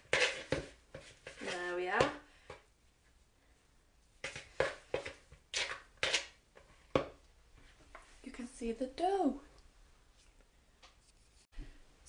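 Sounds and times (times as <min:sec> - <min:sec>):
knife scraping dough in plastic bowl: 0:00.0 - 0:02.2, 0:04.2 - 0:06.9.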